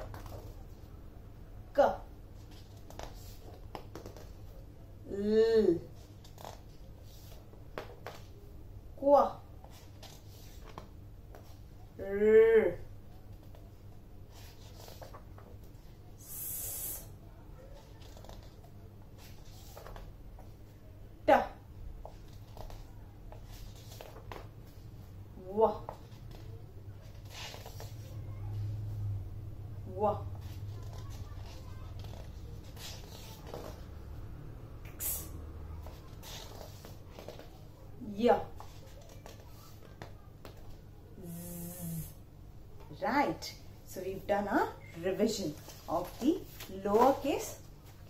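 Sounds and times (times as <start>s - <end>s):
low room hum: 0.0s - 48.0s
faint rustling: 13.0s - 16.1s, 21.8s - 29.3s, 30.2s - 34.4s, 35.1s - 48.0s
woman making hissing s sound: 16.2s - 17.1s, 34.9s - 35.4s, 41.2s - 42.2s
short sharp hiss: 34.9s - 35.4s.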